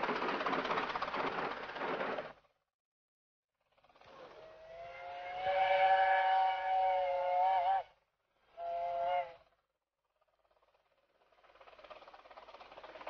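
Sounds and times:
steam locomotive whistle chord: 0:04.7 - 0:07.9.

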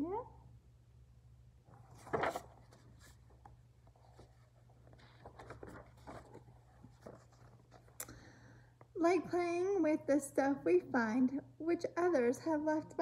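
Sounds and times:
low steady hum: 0:00.0 - 0:13.0
book pages turning: 0:01.7 - 0:08.1.

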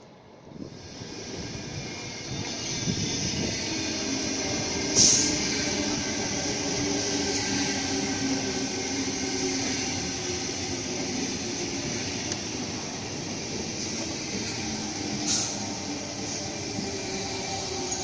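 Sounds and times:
train wheels on rails: 0:00.5 - 0:18.0
loud hiss: 0:04.8 - 0:06.1, 0:14.4 - 0:16.3.

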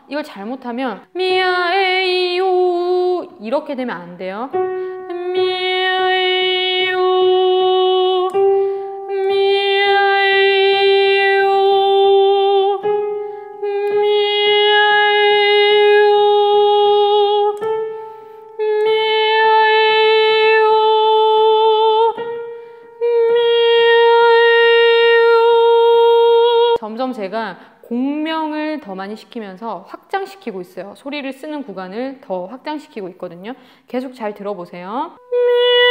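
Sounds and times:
woman singing held notes: 0:13.6 - 0:17.9, 0:18.5 - 0:22.3.

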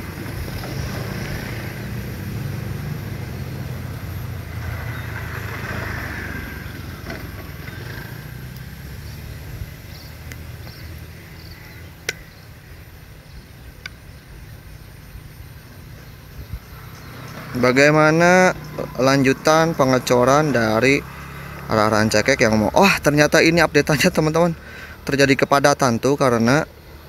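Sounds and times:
vehicle engines running: 0:00.0 - 0:27.0
sharp click: 0:12.0 - 0:12.3.

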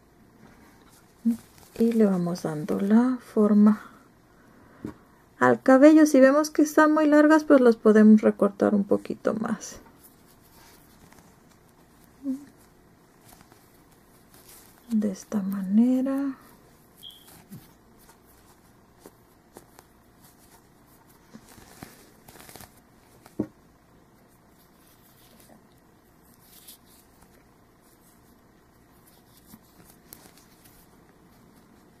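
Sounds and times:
yarn rustling: 0:00.9 - 0:03.0, 0:09.9 - 0:23.4, 0:24.0 - 0:32.0.

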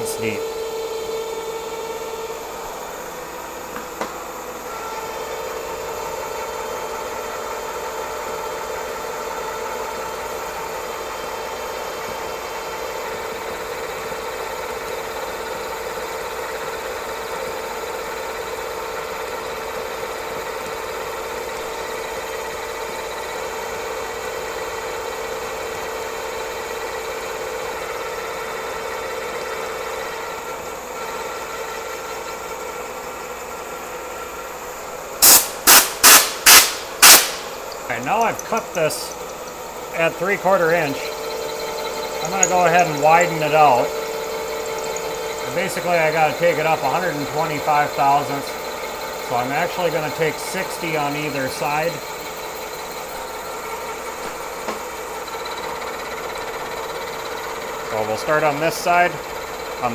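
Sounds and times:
milling machine humming: 0:00.0 - 0:59.9
sharp click: 0:35.2 - 0:37.5.

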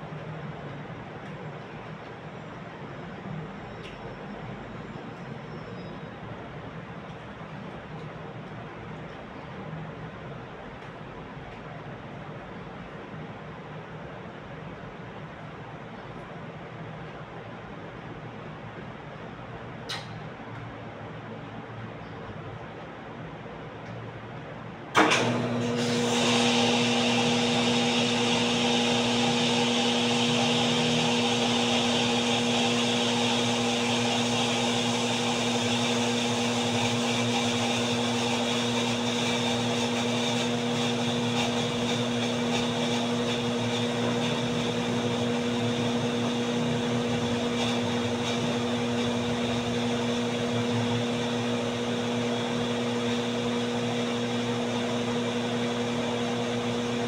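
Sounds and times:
electric motor humming: 0:25.2 - 0:57.0.

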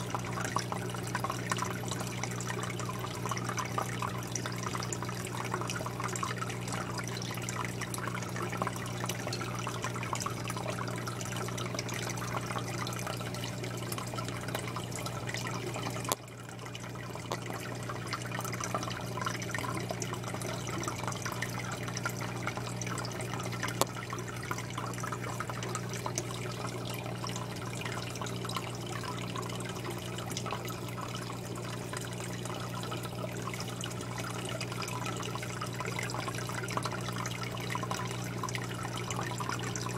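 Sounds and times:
aquarium water bubbling: 0:00.0 - 0:39.9
constant low hum: 0:00.0 - 0:39.9.

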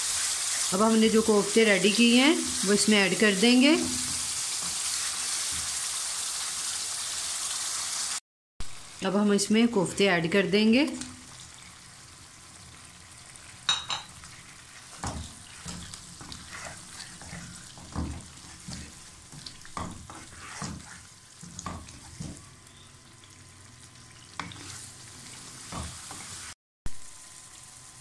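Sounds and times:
faint sizzling in oil: 0:00.0 - 0:10.0, 0:10.6 - 0:28.0
wooden spoon scraping pan: 0:14.2 - 0:22.4.

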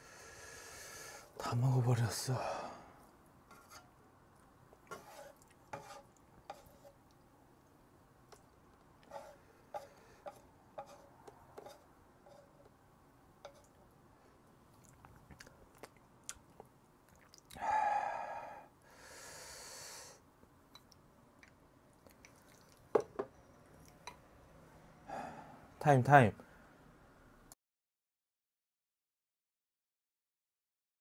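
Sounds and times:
breathy exhale: 0:00.0 - 0:01.3, 0:17.6 - 0:20.2, 0:25.1 - 0:25.7
wet chewing clicks: 0:14.7 - 0:17.6, 0:20.8 - 0:22.9.

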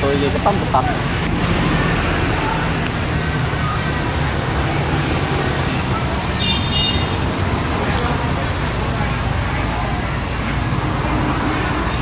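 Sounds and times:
distant traffic rumble: 0:00.0 - 0:12.0.

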